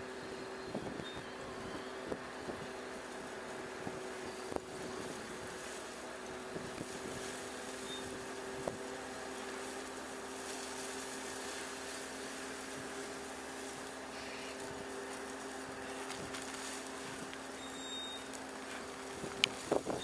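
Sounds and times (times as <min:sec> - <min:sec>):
engine and hydraulic drone: 0:00.0 - 0:20.0
wood chips spilling out: 0:05.0 - 0:20.0.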